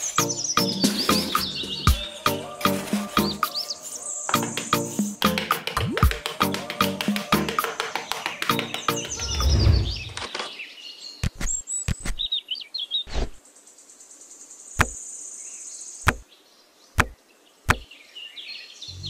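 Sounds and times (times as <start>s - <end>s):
birds chirping: 0.0s - 5.3s, 6.7s - 13.4s
clay bricks knocking: 4.4s - 9.2s, 17.0s - 17.8s
low rumble: 9.2s - 10.2s.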